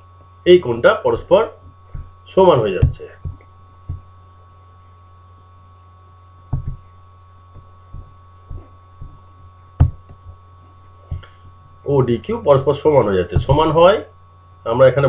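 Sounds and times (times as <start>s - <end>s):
low electrical hum: 0.0s - 15.0s
thin high whine: 0.0s - 15.0s
soft low thumps: 1.2s - 4.7s, 6.4s - 14.0s.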